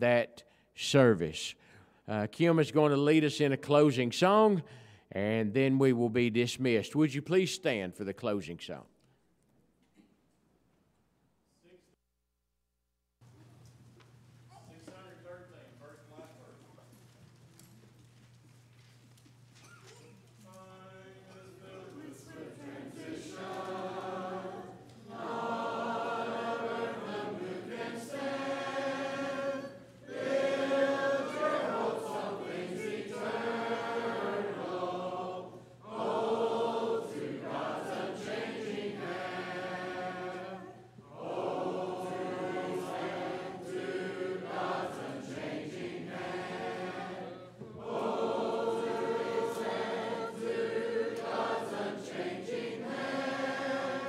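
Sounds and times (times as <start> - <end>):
congregation singing a hymn: 20.5 - 54.0.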